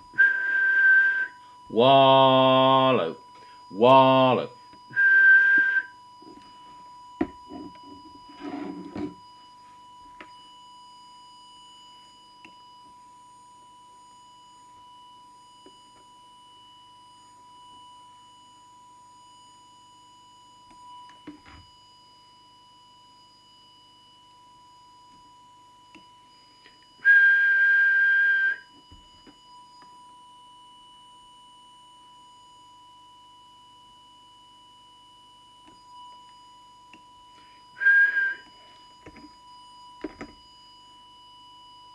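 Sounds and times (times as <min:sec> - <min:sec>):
faint steady test tone: 0:00.0 - 0:41.9
person whistling high note: 0:00.1 - 0:01.6, 0:04.9 - 0:06.4, 0:27.0 - 0:28.8, 0:37.4 - 0:38.9.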